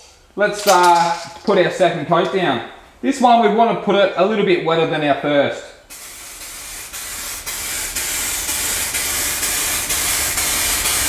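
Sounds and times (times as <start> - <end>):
aerosol spray can hissing: 5.9 - 11.0.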